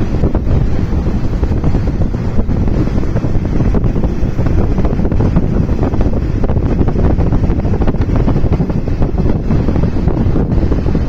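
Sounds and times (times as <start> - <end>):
train rumbling and rattling: 0.0 - 11.0
wind buffeting microphone: 0.0 - 11.0.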